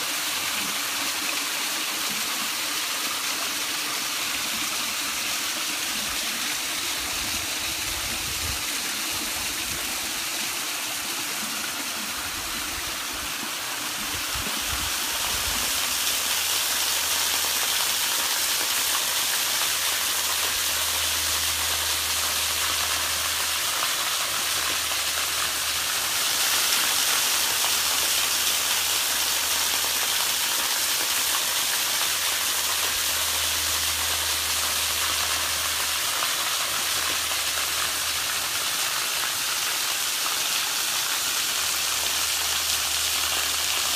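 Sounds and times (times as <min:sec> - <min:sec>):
waterfall splashing into pool: 0:00.0 - 0:43.9.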